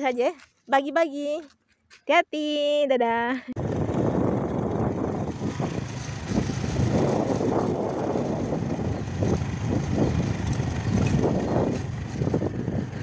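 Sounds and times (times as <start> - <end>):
small motorcycle engine: 3.6 - 13.0
wind noise on microphone: 3.6 - 13.0.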